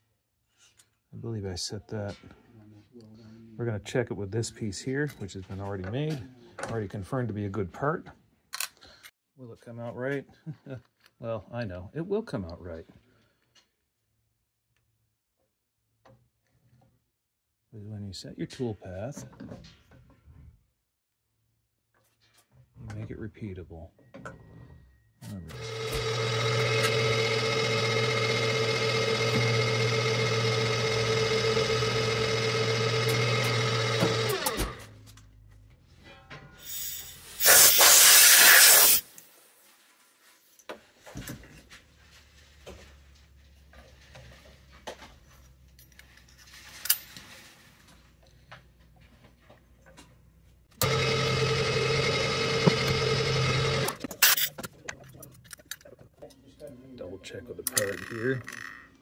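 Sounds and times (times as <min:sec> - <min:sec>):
milling machine motor whining: 0:25.5 - 0:34.9, 0:50.8 - 0:54.5
loud hiss: 0:36.6 - 0:39.4.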